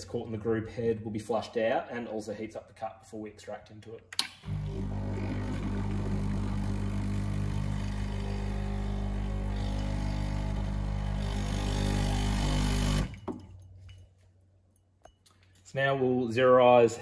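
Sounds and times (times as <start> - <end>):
espresso machine pump buzzing: 4.4 - 13.2.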